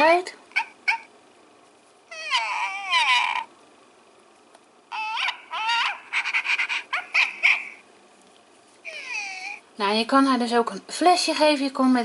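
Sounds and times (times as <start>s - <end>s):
toy puppy yips: 0.5s - 1.1s, 2.1s - 3.5s, 4.9s - 7.8s, 8.9s - 9.6s
toy puppy whines: 2.1s - 3.5s, 4.9s - 7.8s, 8.8s - 9.6s.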